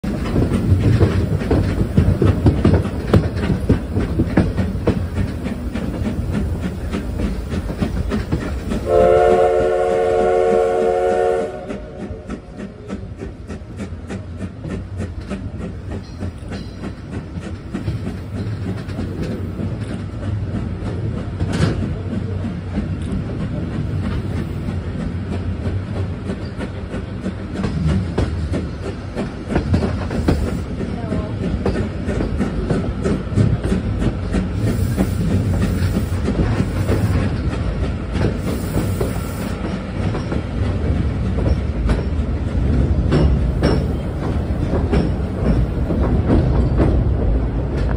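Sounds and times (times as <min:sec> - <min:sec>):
train wheels clattering over rail joints: 0:00.0 - 0:47.9
steam whistle blast: 0:08.8 - 0:12.3.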